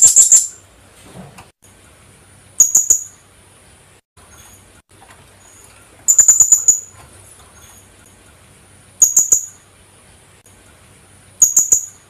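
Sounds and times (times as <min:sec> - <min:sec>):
parrot shrill calls: 0:06.1 - 0:06.9.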